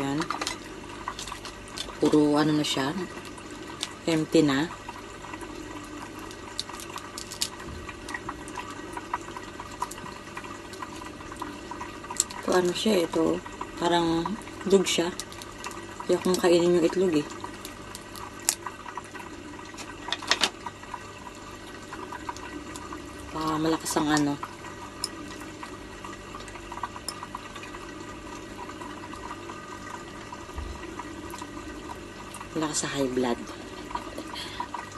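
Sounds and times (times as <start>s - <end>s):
trickle of water: 0.0s - 34.9s
crab shell cracking: 6.2s - 8.6s, 17.4s - 18.8s.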